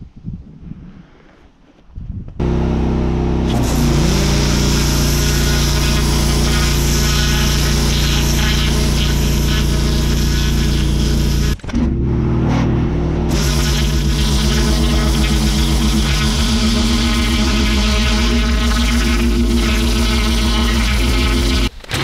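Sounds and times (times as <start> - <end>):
pressure washer pump hum: 2.4 - 11.7, 13.2 - 22.0
water jet hissing on paving: 3.6 - 11.6, 13.3 - 21.7.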